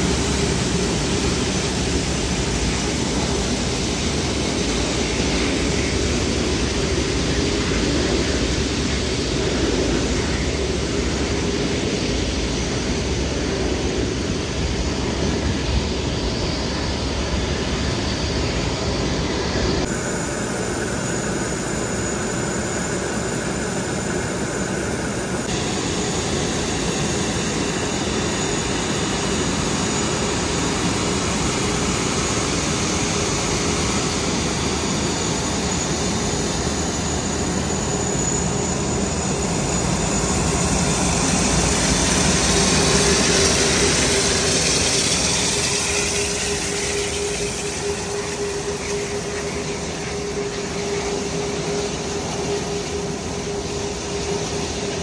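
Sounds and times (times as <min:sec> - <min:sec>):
jet engines rushing and whining: 0:00.0 - 0:55.0.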